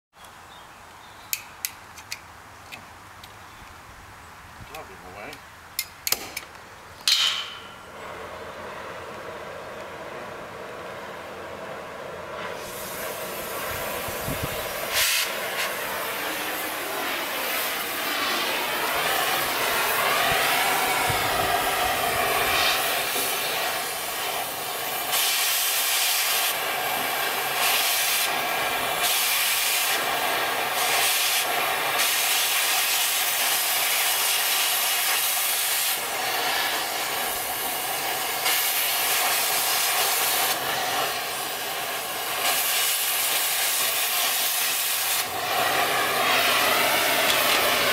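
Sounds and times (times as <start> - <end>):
cutting torch hissing: 10.6 - 47.9.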